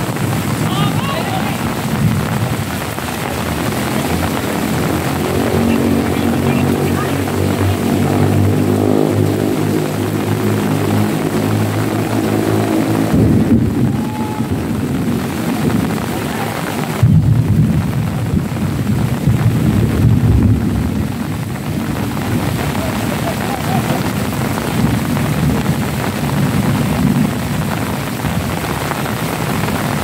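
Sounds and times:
low rumble: 0:01.4 - 0:28.7
engine drone: 0:01.6 - 0:17.4.

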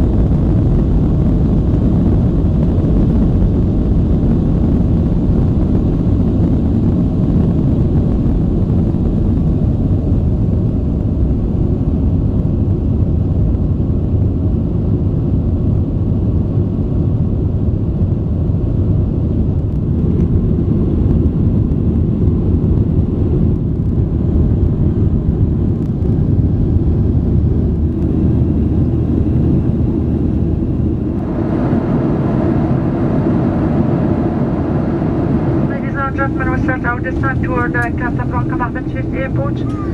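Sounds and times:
air rushing along fuselage: 0:00.0 - 0:39.9
jet engines low rumble: 0:00.0 - 0:39.9.

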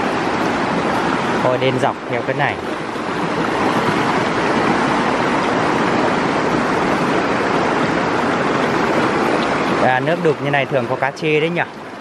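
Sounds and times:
rushing stream water: 0:00.0 - 0:12.0.

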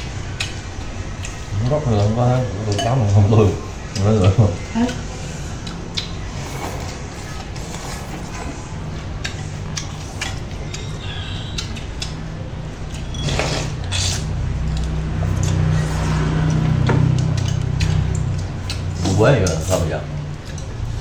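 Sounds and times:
chopsticks clicking on ceramic bowls: 0:16.4 - 0:19.8, 0:20.4 - 0:20.8.

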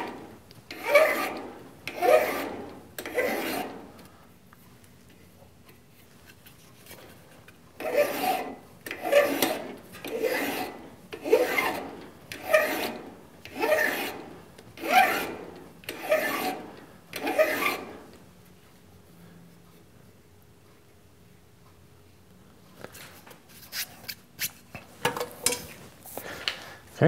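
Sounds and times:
file scraping steel tube: 0:00.0 - 0:04.0, 0:07.8 - 0:18.1.

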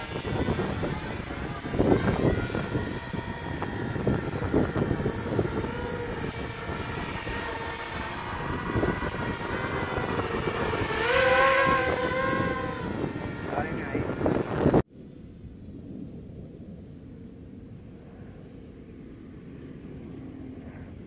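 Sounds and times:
drone propellers whining: 0:00.0 - 0:14.8.

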